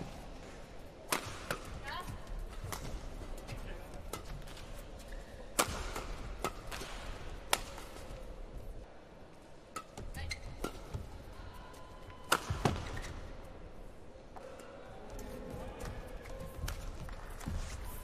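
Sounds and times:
low hall noise: 0.0 - 18.0
racket hitting shuttlecock: 1.0 - 1.9, 5.5 - 8.2, 9.7 - 11.1, 12.2 - 13.2.

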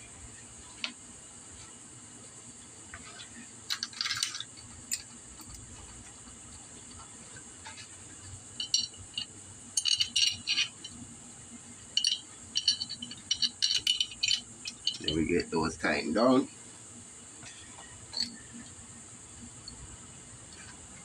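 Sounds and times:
metal bolts clinking: 3.7 - 5.6, 8.6 - 11.0, 12.0 - 15.5, 18.1 - 18.4.

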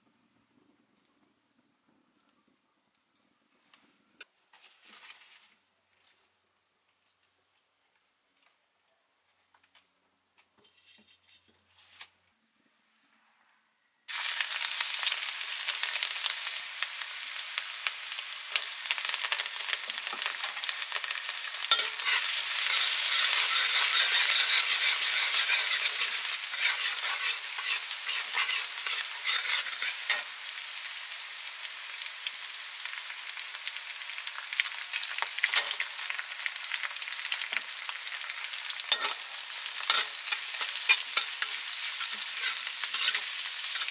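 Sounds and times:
metal spatula scraping wok: 10.6 - 11.8, 20.0 - 30.4, 35.4 - 35.9, 38.8 - 43.9
vegetables sizzling in hot oil: 14.1 - 43.9.

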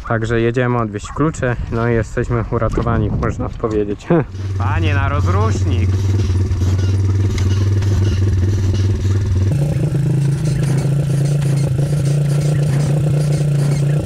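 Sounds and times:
pit bike engine running: 3.2 - 14.0.

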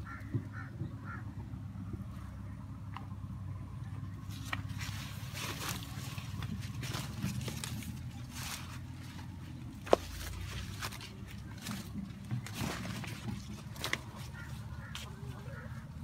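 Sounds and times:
low steady rumble: 0.0 - 16.0
footsteps in a field: 4.1 - 16.0
corn leaves rustling: 4.2 - 16.0.

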